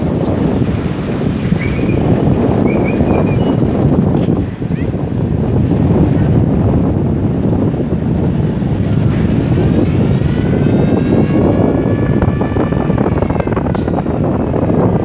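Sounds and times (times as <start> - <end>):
wind buffeting microphone: 0.0 - 15.0
droning engine: 7.0 - 15.0.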